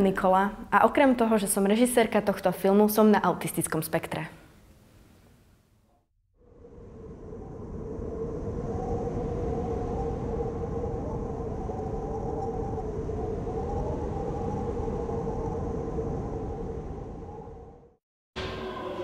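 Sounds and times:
held hum: 0:06.4 - 0:19.0
rumbling drone: 0:06.4 - 0:19.0.

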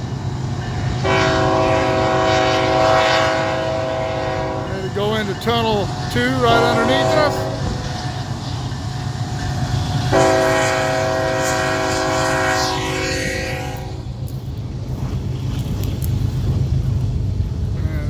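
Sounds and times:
diesel engines rumbling: 0:00.0 - 0:18.0
locomotive air horn blast: 0:01.0 - 0:04.7, 0:06.4 - 0:07.8, 0:10.1 - 0:14.0.

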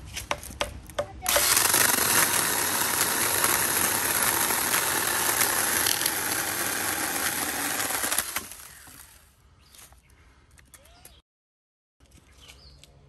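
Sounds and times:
pruning chainsaw cutting branch: 0:01.2 - 0:09.2
motor spinning down: 0:01.3 - 0:09.2.

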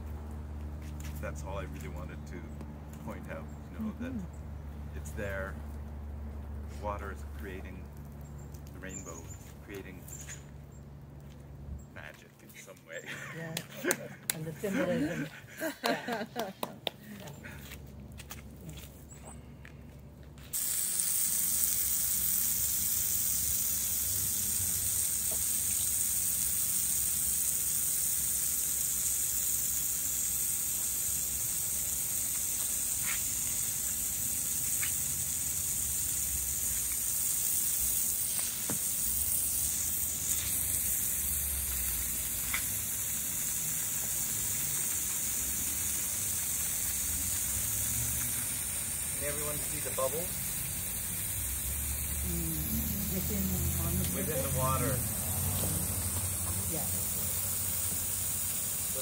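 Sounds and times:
hose spray hissing: 0:20.4 - 0:59.0
water splashing on paving: 0:20.6 - 0:52.0.

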